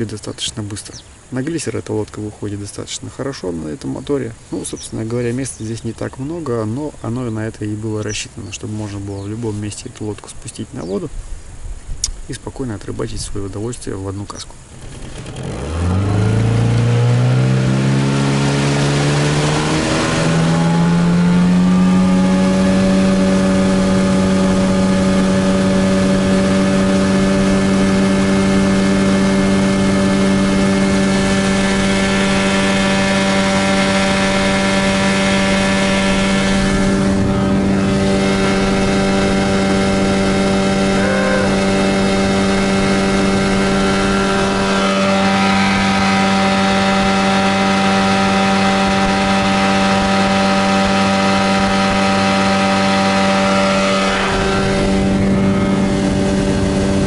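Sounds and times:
outboard motor accelerating: 14.6 - 57.0.

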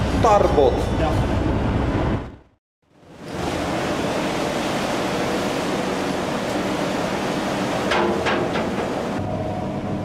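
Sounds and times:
sea water splashing along boat: 3.0 - 9.2.

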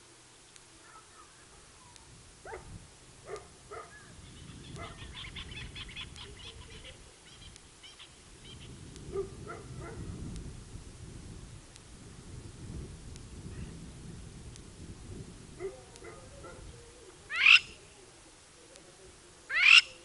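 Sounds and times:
short rising animal calls: 15.8 - 17.8.

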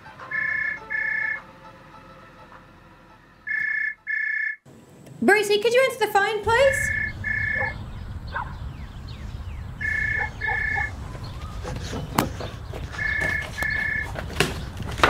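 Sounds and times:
telephone ringing: 0.3 - 1.4, 3.5 - 4.6, 6.8 - 7.7, 9.8 - 10.9, 13.0 - 14.1.

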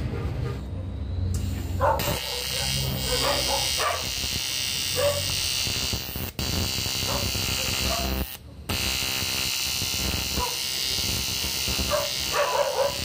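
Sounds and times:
welding arc buzzing hiss: 1.4 - 13.0
short bark-like sounds: 1.8 - 4.1, 11.9 - 13.0.

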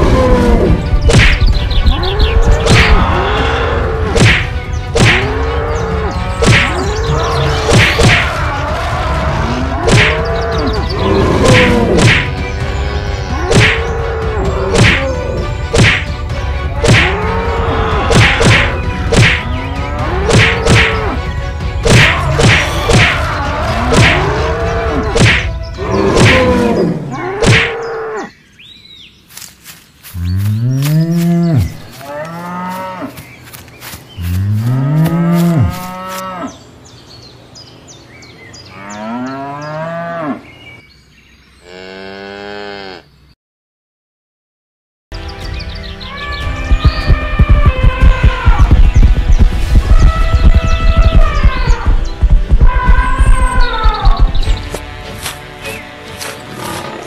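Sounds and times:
sharp whacks: 1.0 - 1.5, 2.6 - 3.0, 4.1 - 5.3, 6.4 - 6.8, 7.6 - 8.3, 9.9 - 10.2, 11.5 - 12.4, 13.5 - 13.9, 14.7 - 15.1, 15.7 - 16.1, 16.8 - 17.2, 18.1 - 19.5, 20.3 - 21.0, 21.8 - 23.2, 23.9 - 24.3, 25.2 - 26.6, 27.4 - 27.8
cattle mooing and bellowing: 1.8 - 4.2, 5.0 - 15.6, 16.7 - 28.3, 30.2 - 33.2, 34.2 - 36.6, 38.6 - 40.5, 41.6 - 43.1, 46.3 - 48.9.

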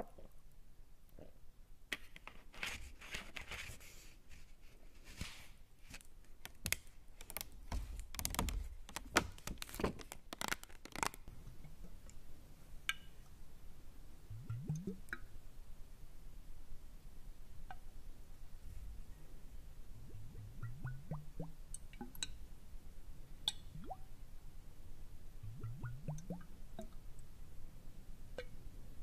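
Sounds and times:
crunchy scratchy clicks and rustles: 5.0 - 11.3.

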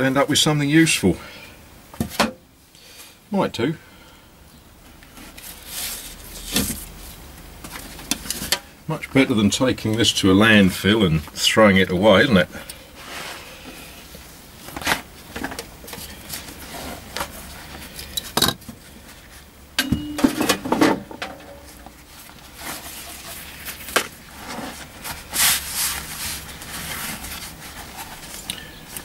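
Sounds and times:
leather rubbing and rustling: 22.0 - 28.5.

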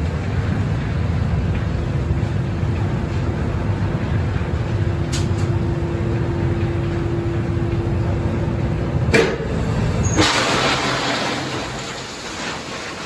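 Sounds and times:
steady hum: 0.0 - 12.2
train wagons rumbling: 0.0 - 13.0
coal pouring into wagon: 10.0 - 13.0.

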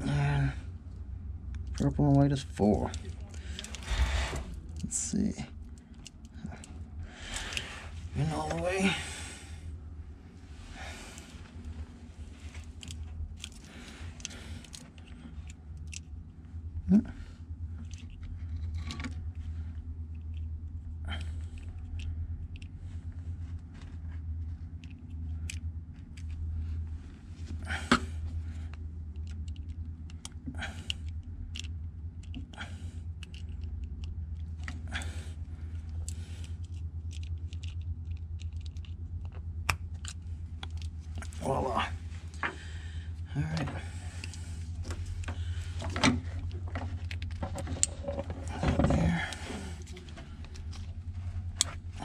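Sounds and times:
steady low hum: 0.0 - 52.0
wiring connector clicks and rustles: 11.4 - 16.2, 27.9 - 34.9, 35.7 - 41.4, 43.5 - 52.0.

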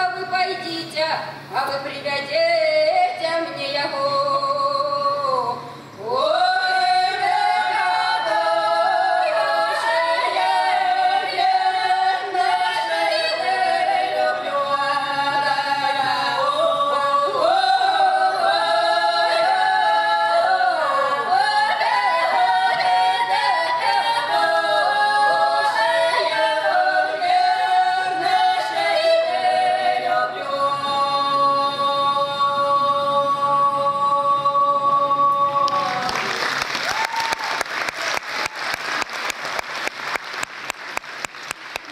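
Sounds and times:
women singing folk song a cappella: 0.0 - 36.1.

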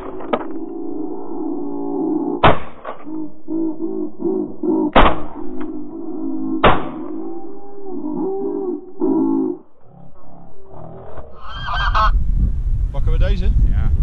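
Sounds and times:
shotgun blasts: 2.4 - 3.0, 6.6 - 7.0
geese honking: 11.2 - 12.2.

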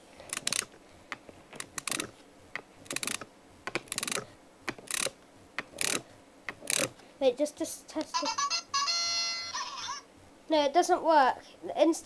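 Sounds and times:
toy rattling over ridges: 0.2 - 7.0.

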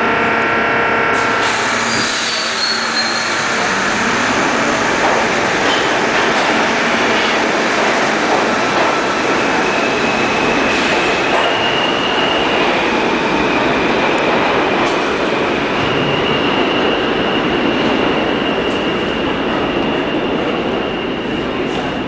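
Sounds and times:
high whine: 0.0 - 8.1
wheels rumbling on rail: 0.0 - 22.0.

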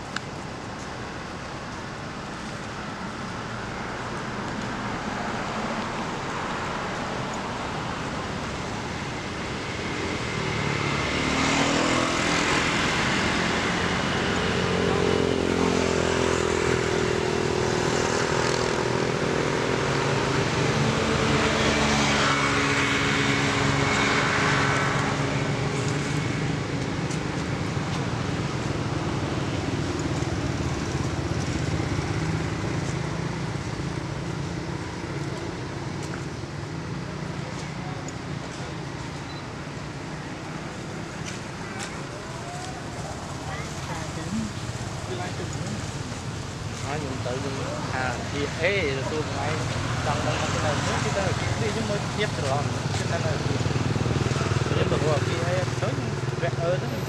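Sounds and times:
road noise: 0.0 - 57.0.

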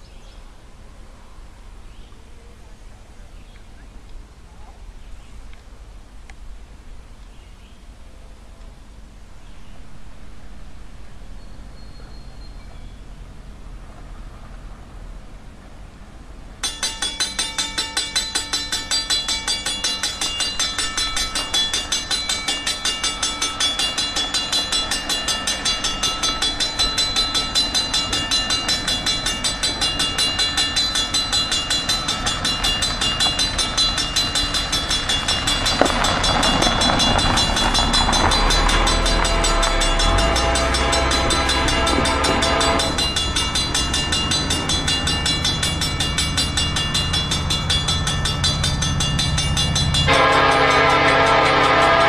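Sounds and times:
locomotive rumble: 8.4 - 52.0
level-crossing warning bell: 16.6 - 52.0
locomotive air horn: 38.0 - 43.2, 50.1 - 52.0.

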